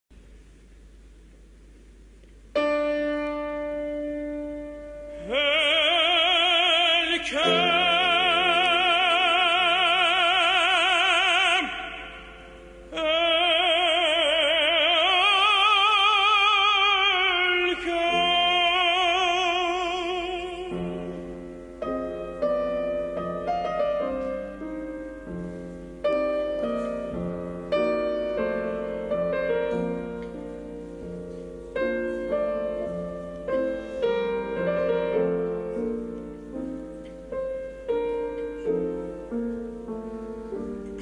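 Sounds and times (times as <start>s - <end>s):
piano accompaniment: 2.4s - 41.0s
operatic solo singing with vibrato: 5.2s - 21.0s.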